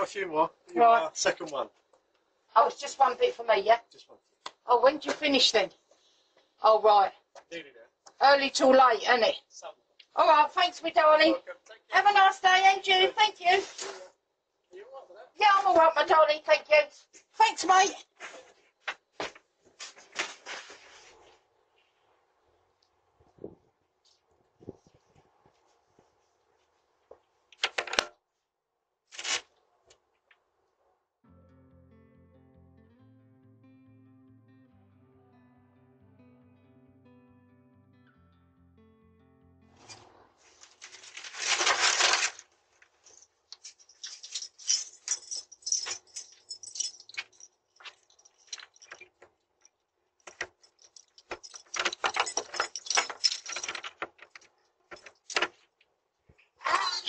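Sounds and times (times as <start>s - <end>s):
loud rustle: 39.9s - 42.4s
rustling and clicking handling: 40.0s - 55.9s
keys jangling at a lock: 43.0s - 55.6s.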